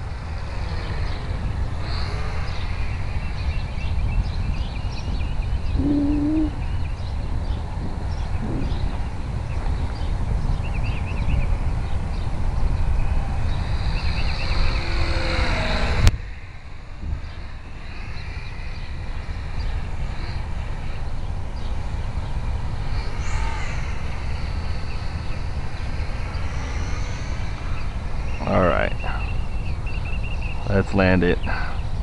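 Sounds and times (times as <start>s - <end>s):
model airplane motor whine: 0.0s - 4.8s, 12.8s - 28.4s
wind rumble on microphone: 0.0s - 32.0s.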